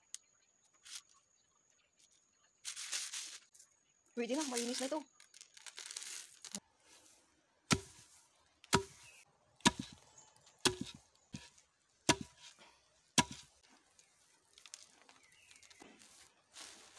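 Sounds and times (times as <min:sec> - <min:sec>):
wooden pestle pounding in mortar: 0:07.7 - 0:08.0, 0:08.7 - 0:10.0, 0:10.6 - 0:11.5, 0:12.1 - 0:12.4, 0:13.2 - 0:13.4.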